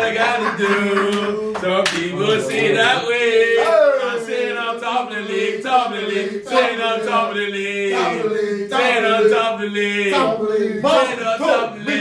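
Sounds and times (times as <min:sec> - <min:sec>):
men chanting: 0:00.0 - 0:12.0.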